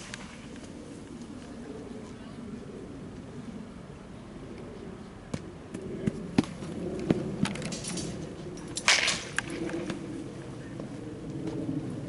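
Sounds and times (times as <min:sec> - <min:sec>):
bat cracking against ball: 0:06.0 - 0:10.0.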